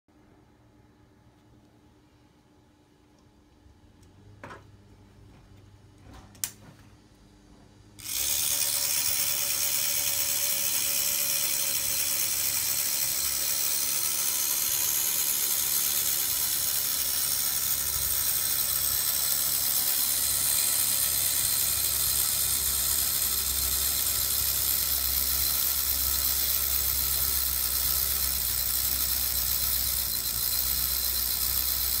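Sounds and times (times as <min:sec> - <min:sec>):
clockwork motor whirring: 0:08.0 - 0:32.0.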